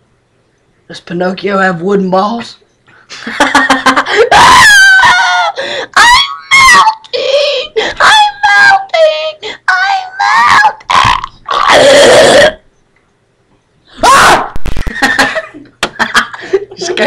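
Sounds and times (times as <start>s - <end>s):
boy wailing and squealing: 4.2s - 12.6s, 14.0s - 14.6s
boy yelling: 4.4s - 7.2s, 8.0s - 12.4s.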